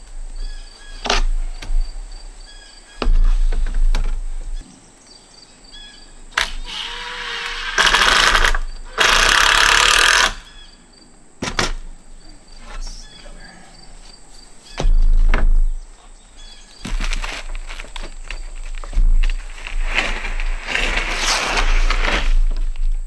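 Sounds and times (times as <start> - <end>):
impact driver hammering screws: 7.5 - 10.5.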